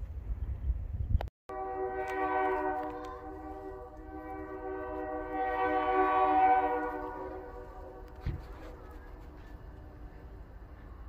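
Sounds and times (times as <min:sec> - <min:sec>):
train rumbling: 0:00.0 - 0:11.0
locomotive air horn blast: 0:01.5 - 0:09.5.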